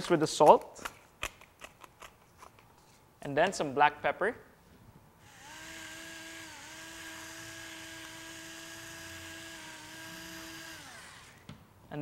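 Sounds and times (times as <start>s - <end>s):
electric pepper mill grinding: 5.3s - 11.5s.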